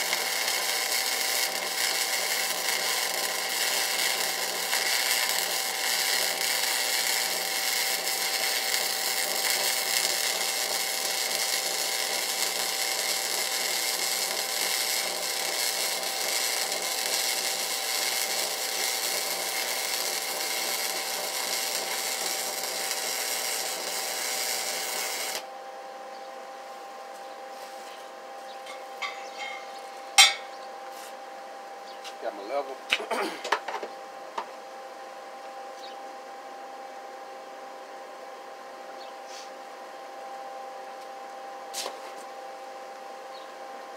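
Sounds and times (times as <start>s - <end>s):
arc welding crackling hiss: 0.0s - 25.5s.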